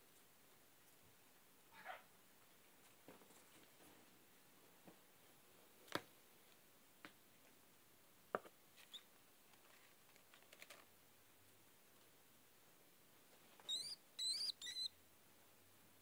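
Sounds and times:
faint sharp clicks and taps: 0:05.8 - 0:07.6, 0:08.3 - 0:08.6
brief high squeak: 0:13.7 - 0:14.9.

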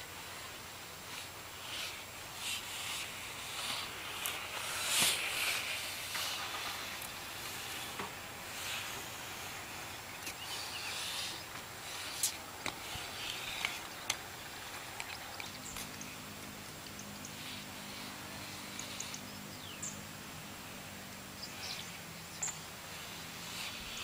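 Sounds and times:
skate wheels rolling on hard court: 0:01.8 - 0:15.9.

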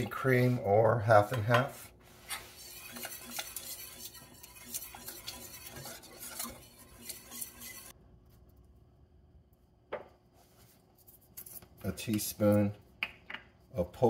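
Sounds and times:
whisk scraping in a metal saucepan: 0:00.0 - 0:08.0.

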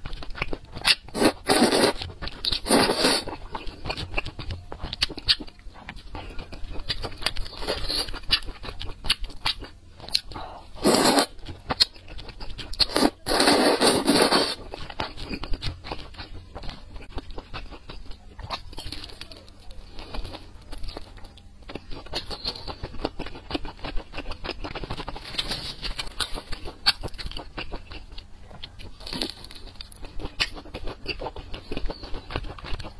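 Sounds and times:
wet chewing clicks: 0:00.0 - 0:32.9
loud slurping of noodles: 0:10.8 - 0:11.3.

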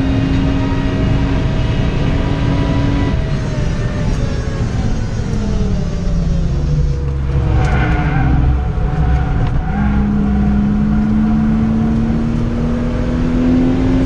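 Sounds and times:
car engine accelerating: 0:00.0 - 0:14.0.

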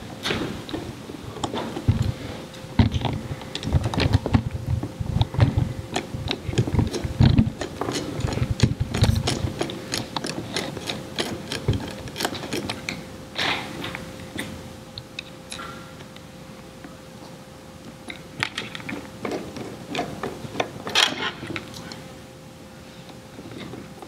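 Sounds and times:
screwdriver turning a screw: 0:05.9 - 0:12.9.

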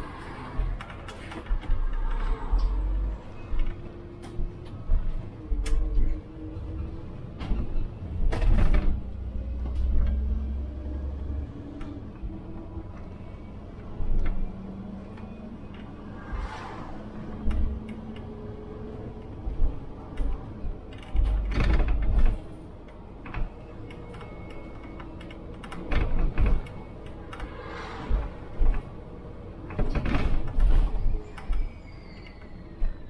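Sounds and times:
rattles and clunks from bus body: 0:00.0 - 0:16.4, 0:17.3 - 0:33.0
bus engine running: 0:00.0 - 0:31.7.

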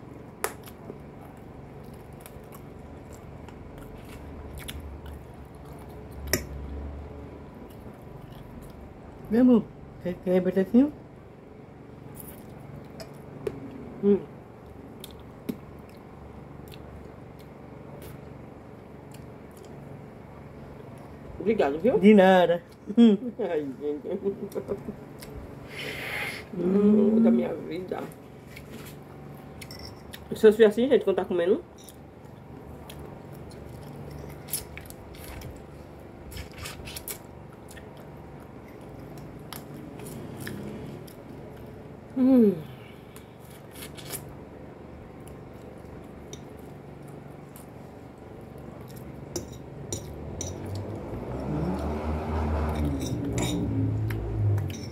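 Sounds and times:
soft chewing: 0:00.0 - 0:06.8, 0:07.5 - 0:09.3, 0:14.6 - 0:20.0, 0:31.8 - 0:41.9, 0:45.0 - 0:51.9
fork scraping a glass plate: 0:52.7 - 0:53.7.

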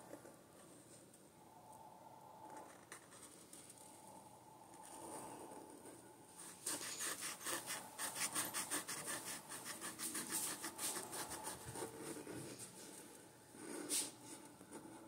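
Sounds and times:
pen scratching on paper: 0:04.9 - 0:12.6.

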